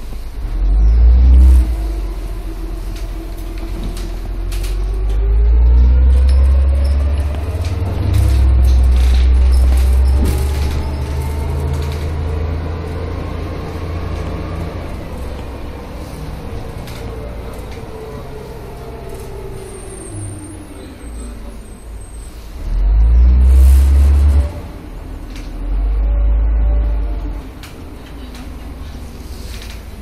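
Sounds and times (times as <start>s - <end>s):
deep rumbles: 0.0s - 20.7s
bus engine from inside: 0.0s - 30.0s.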